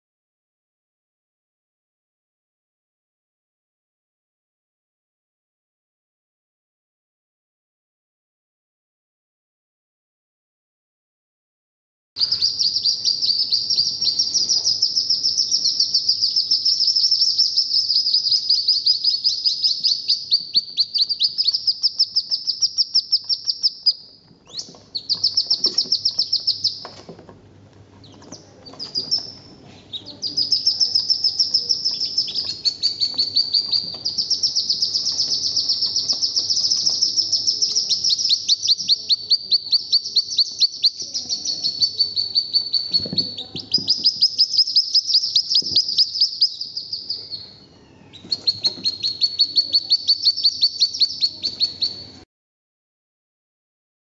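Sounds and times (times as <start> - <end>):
ducklings peeping: 12.2 - 27.3, 27.9 - 52.2.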